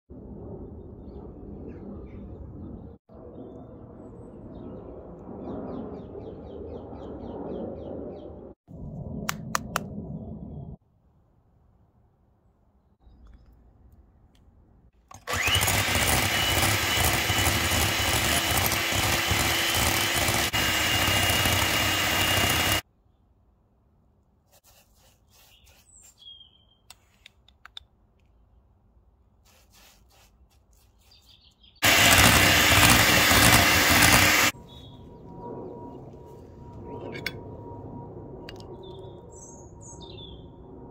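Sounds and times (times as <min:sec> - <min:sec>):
electric hand mixer whirring: 0:15.1 - 0:22.8, 0:31.8 - 0:34.6.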